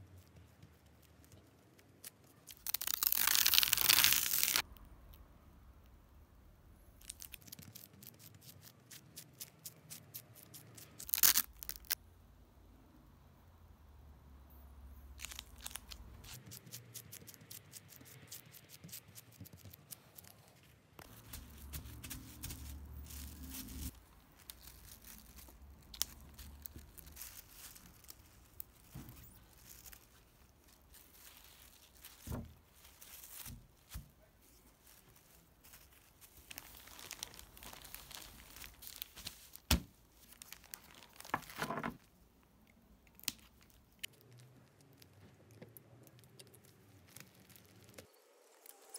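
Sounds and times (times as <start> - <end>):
plastic film crinkling and tearing: 1.1 - 4.7, 7.0 - 12.0, 15.2 - 42.1, 43.2 - 48.9
plastic bag crinkling: 2.4 - 4.7, 10.8 - 12.0, 20.3 - 42.1.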